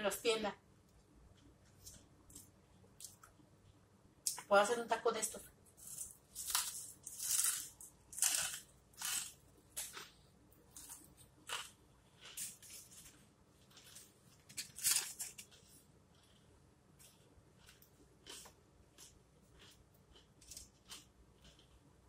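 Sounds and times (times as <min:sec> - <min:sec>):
crisp chewing crunches: 0:05.8 - 0:21.9.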